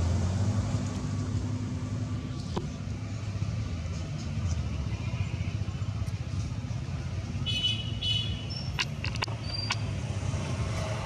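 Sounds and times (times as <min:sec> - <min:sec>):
high squeaky calls: 0:08.1 - 0:09.8
sharp clicks: 0:08.7 - 0:09.9.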